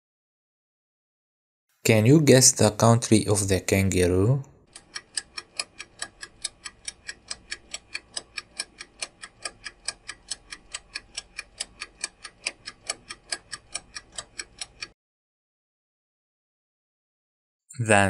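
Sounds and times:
clock ticking: 4.6s - 15.0s.

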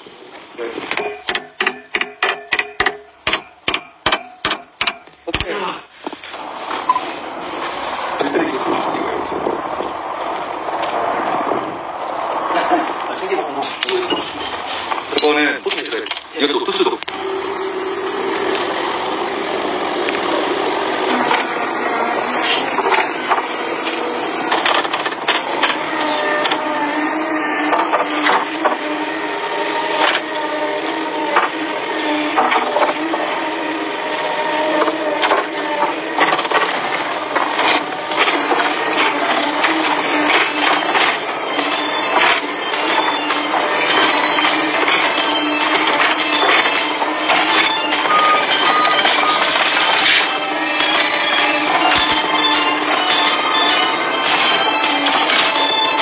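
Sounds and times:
excavator engine drone: 0.0s - 56.0s
hammer ringing on steel: 0.9s - 5.5s.

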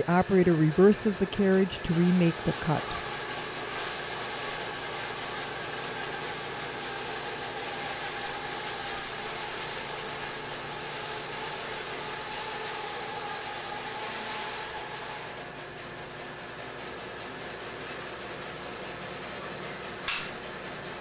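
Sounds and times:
bandsaw sawmill running: 0.0s - 21.0s.

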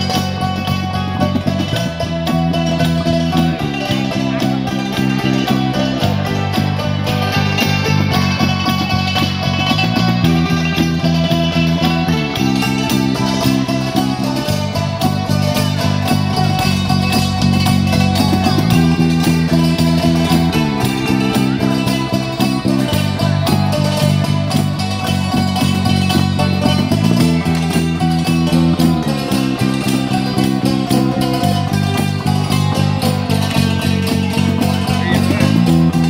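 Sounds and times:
electric bass line: 0.0s - 36.0s
table zithers playing: 0.0s - 36.0s.

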